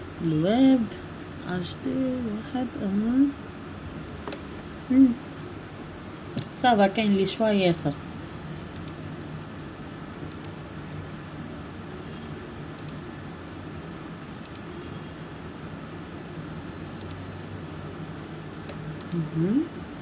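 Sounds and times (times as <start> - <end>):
steady low hum: 0.0 - 20.0
computer mouse clicks: 8.7 - 9.0, 10.2 - 10.6, 12.8 - 13.0, 14.4 - 14.7, 17.0 - 17.2, 18.7 - 19.2.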